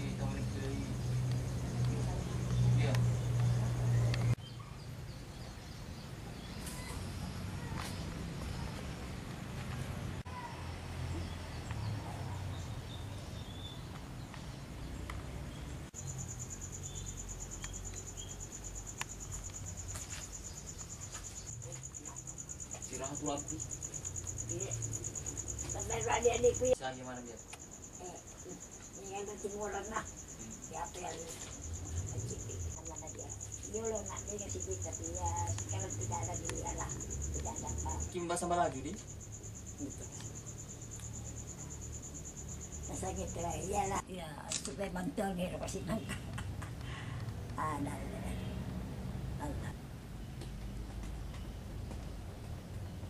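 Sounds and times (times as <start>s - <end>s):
cricket chirping: 0.0s - 9.0s, 10.4s - 53.0s
high-pitched insect trill: 15.9s - 44.0s.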